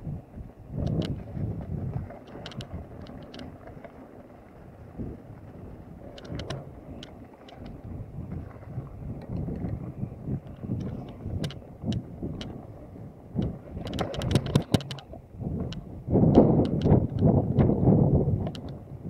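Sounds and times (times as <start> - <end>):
bike tyres rumbling on dirt: 0.0 - 19.0
wind on microphone: 0.0 - 19.0
bike rattling clicks: 0.8 - 3.9, 6.0 - 8.0, 10.4 - 12.6, 13.4 - 17.7, 18.4 - 18.8.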